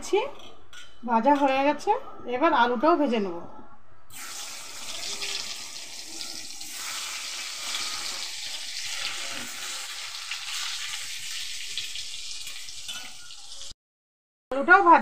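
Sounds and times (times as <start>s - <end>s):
potatoes sizzling in hot oil: 4.1s - 13.7s.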